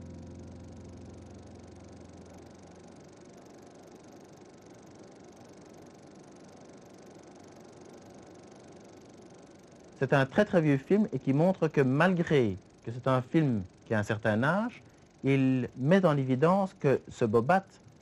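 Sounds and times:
faint steady hiss: 0:00.0 - 0:18.0.

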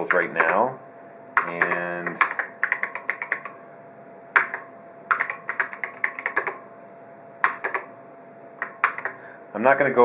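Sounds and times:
keyboard typing: 0:00.0 - 0:00.6, 0:01.4 - 0:03.6, 0:04.4 - 0:06.6, 0:07.4 - 0:07.9, 0:08.6 - 0:09.2.

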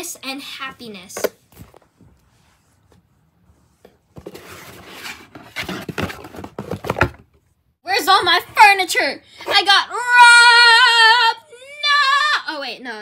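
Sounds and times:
cardboard box rustling: 0:04.1 - 0:07.3.

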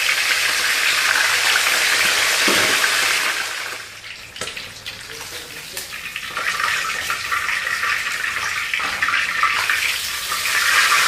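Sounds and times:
oil sizzling with fish frying: 0:00.0 - 0:11.0.

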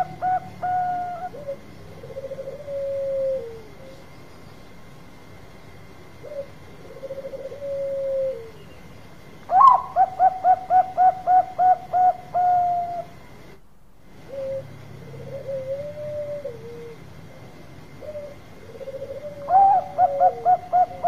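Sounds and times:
dove cooing: 0:00.0 - 0:04.0, 0:06.0 - 0:08.6, 0:09.5 - 0:13.2, 0:14.1 - 0:17.1, 0:17.9 - 0:21.0.

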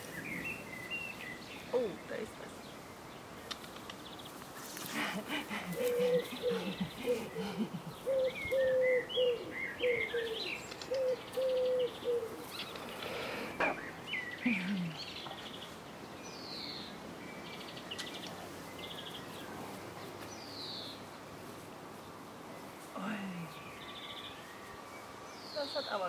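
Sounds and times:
small birds chirping: 0:00.0 - 0:26.0.

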